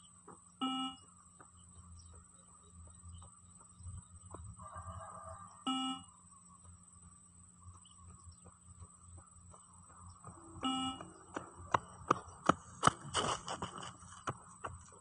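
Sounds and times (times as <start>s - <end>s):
beep test beeps: 0.6s - 1.1s, 5.7s - 6.1s, 10.6s - 11.1s
running footsteps on concrete: 1.2s - 5.5s, 7.7s - 15.0s.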